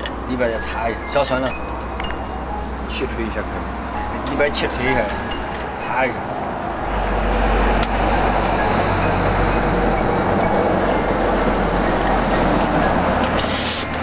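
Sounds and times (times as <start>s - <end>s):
low mechanical rumble: 0.0s - 14.0s
air gun blast: 13.4s - 13.9s.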